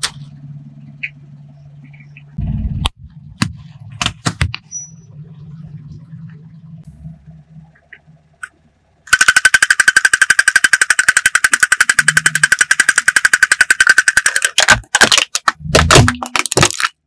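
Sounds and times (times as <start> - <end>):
clockwork toy ticking: 9.1 - 14.6
plastic cracking and scraping: 14.2 - 17.0.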